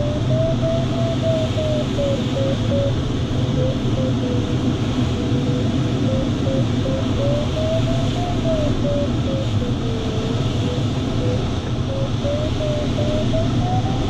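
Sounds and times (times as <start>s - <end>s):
smooth low variometer tone: 0.0s - 14.0s.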